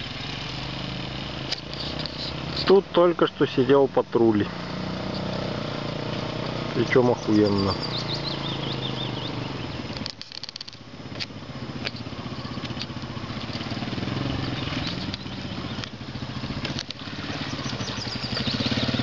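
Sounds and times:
motorcycle engine: 0.0s - 19.0s
sharp clicks: 9.9s - 13.8s.

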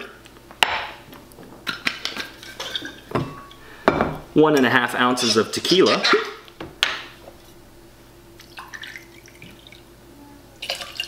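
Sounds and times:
liquid trickling into metal jigger: 8.4s - 9.8s, 10.6s - 11.0s.

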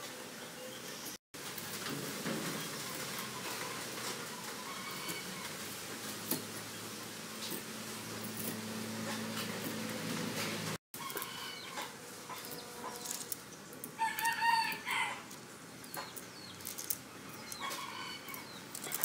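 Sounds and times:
rooster crowing: 11.0s - 13.0s, 14.0s - 15.3s, 17.6s - 18.5s.

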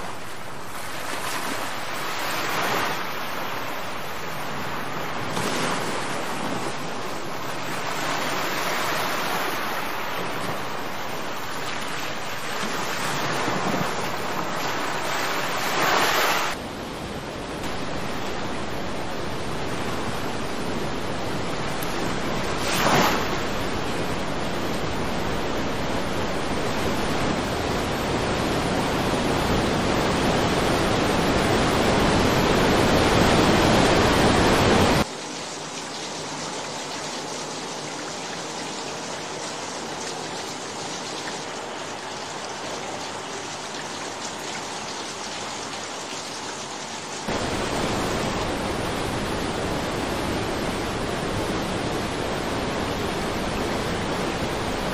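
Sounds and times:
rushing floodwater: 0.0s - 54.9s
heavy rain: 23.4s - 54.9s.

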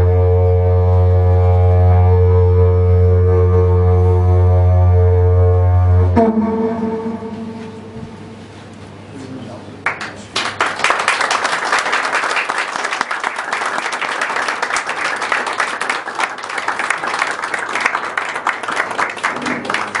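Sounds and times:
audience applauding: 9.8s - 20.0s.

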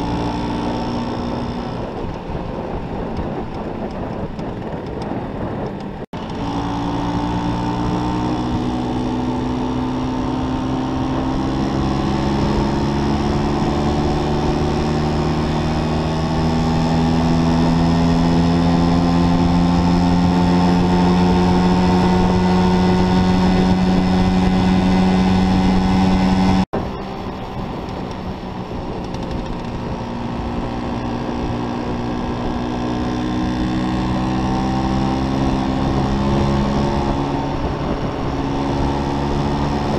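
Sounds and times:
scooter engine accelerating: 0.0s - 39.9s
wind rushing over microphone: 0.0s - 39.9s.

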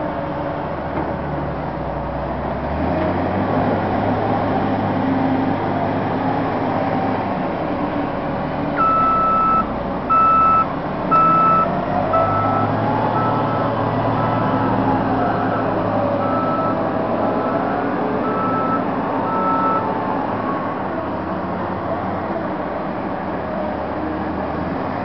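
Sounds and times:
diesel heavy equipment engines: 0.0s - 25.0s
backup alarm beeping: 8.8s - 13.6s.

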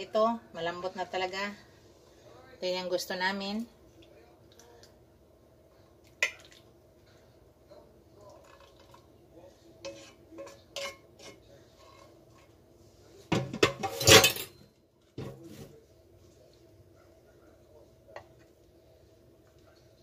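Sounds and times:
wooden tongs scraping a pan: 9.8s - 12.6s.

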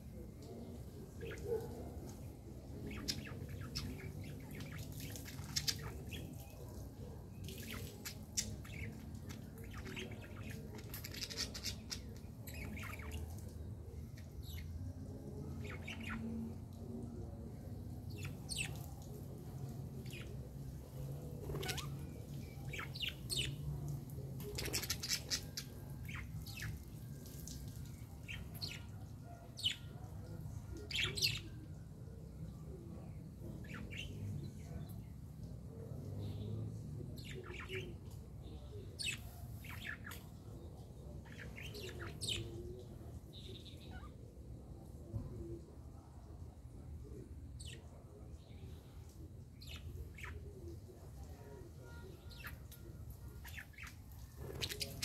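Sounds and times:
budgerigars chirping: 54.5s - 55.0s.

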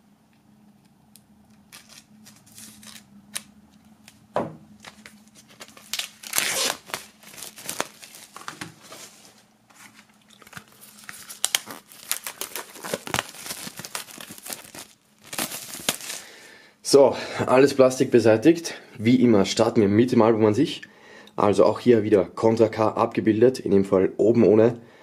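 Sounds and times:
plastic wrap crinkling and tearing: 1.7s - 4.2s, 4.8s - 16.4s.

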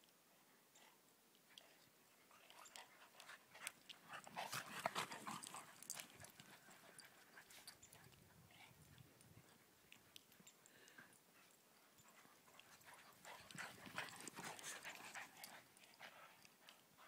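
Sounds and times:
dogs panting: 1.6s - 17.0s
paws crunching in snow: 12.1s - 16.4s.

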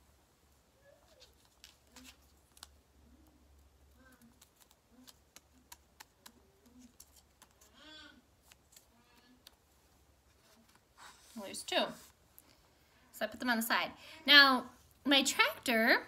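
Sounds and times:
faint clicks and taps of paper handling: 1.1s - 7.8s.

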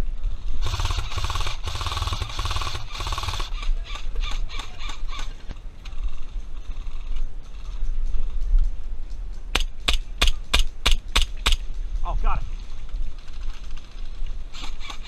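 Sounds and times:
electric rifles firing full-auto: 0.6s - 3.6s.

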